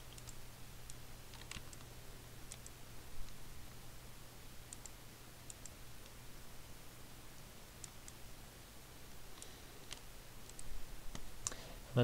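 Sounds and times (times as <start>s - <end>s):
low steady hum: 0.0s - 12.0s
computer mouse buttons clicking: 0.1s - 1.9s, 2.5s - 3.4s, 4.7s - 5.8s, 9.4s - 11.6s.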